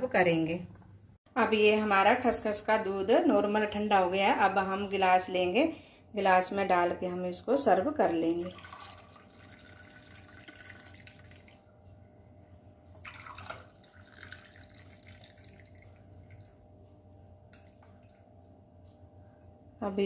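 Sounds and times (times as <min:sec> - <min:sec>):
liquid pouring and dripping: 0:08.3 - 0:11.8, 0:12.9 - 0:18.6.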